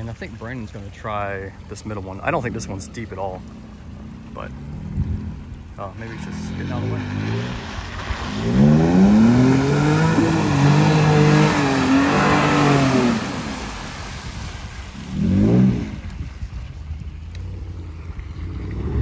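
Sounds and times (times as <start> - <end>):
muddy water spraying: 0.0 - 19.0
truck engine revving: 1.1 - 14.2, 15.0 - 16.2.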